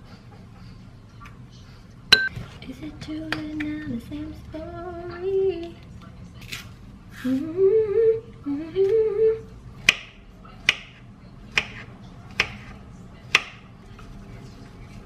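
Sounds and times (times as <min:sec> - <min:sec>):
woman humming: 0:07.2 - 0:09.5.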